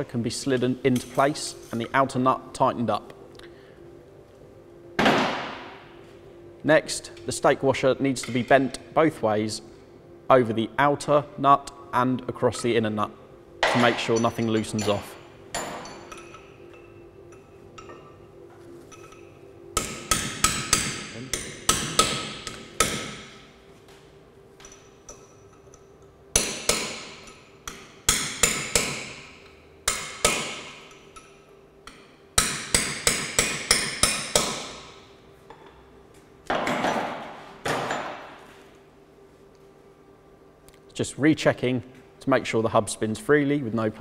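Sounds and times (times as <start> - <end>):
hammer striking a chisel: 13.6 - 18.1, 18.9 - 23.5, 24.6 - 35.8, 36.5 - 38.4.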